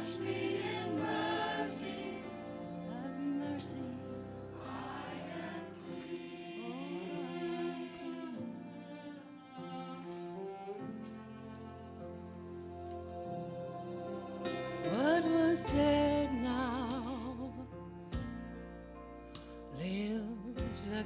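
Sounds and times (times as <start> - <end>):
sustained string chords: 0.0 - 18.0
rising and falling melody: 11.4 - 16.4.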